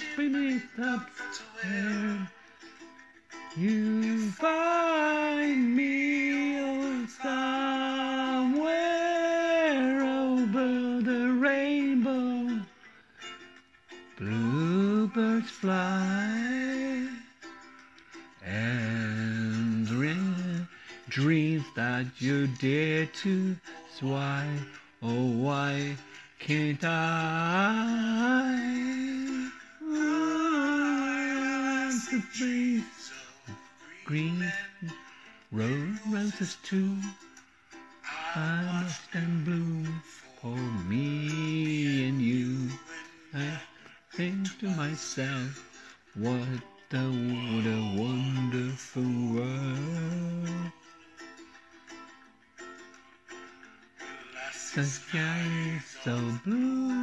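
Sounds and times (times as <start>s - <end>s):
man singing long held notes: 0.0s - 2.4s, 3.6s - 12.7s, 14.2s - 17.3s, 18.4s - 37.3s, 38.0s - 50.9s, 54.0s - 57.0s
singer breathing: 20.7s - 21.1s, 43.7s - 44.2s, 45.6s - 46.1s.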